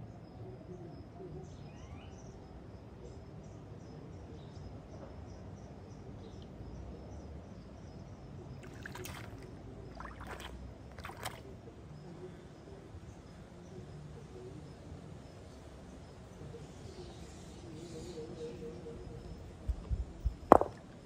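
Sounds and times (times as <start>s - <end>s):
river water running: 8.5s - 11.6s
stones splashing in water: 8.6s - 11.4s, 20.5s - 21.0s.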